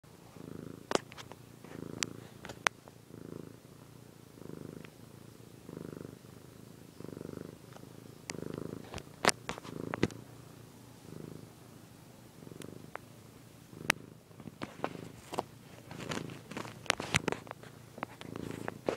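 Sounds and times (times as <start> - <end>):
cat purring: 0.1 - 18.9.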